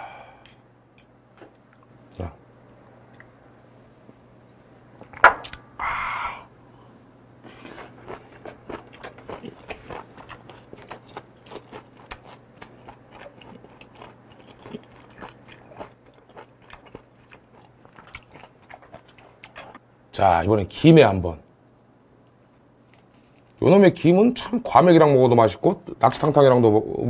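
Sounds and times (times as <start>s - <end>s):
person chewing food: 7.4s - 19.8s.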